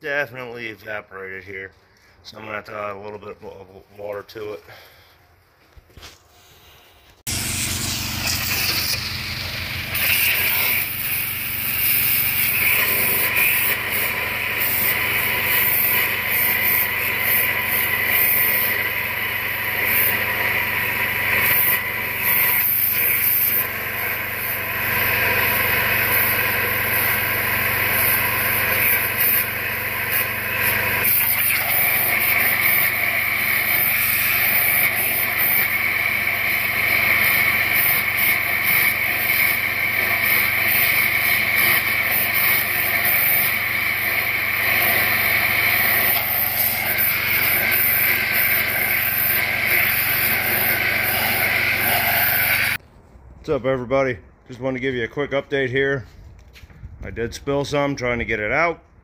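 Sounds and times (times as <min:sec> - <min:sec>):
motor hum: 0:06.6 - 0:52.8
pressure washer jet hissing: 0:06.6 - 0:52.8.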